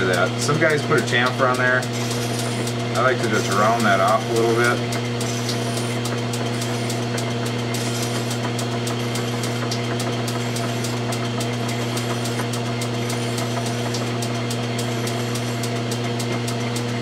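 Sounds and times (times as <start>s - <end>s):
metal lathe humming: 0.0s - 17.0s
hand file rasping on metal: 1.8s - 8.4s, 10.3s - 14.1s, 14.8s - 15.7s.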